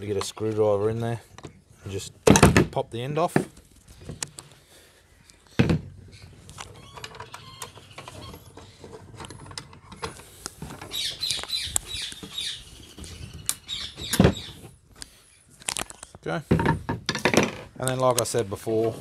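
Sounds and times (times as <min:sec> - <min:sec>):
short high squeaks: 0:06.1 - 0:08.8.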